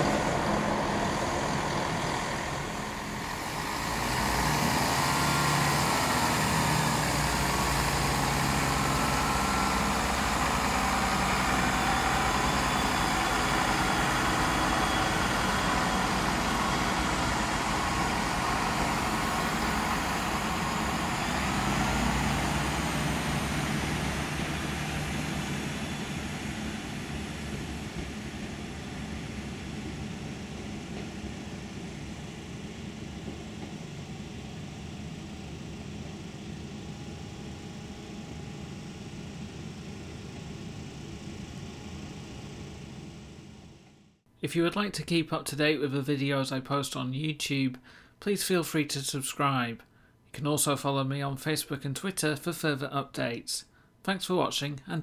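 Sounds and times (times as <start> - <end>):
diesel train passing: 0.0 - 43.8.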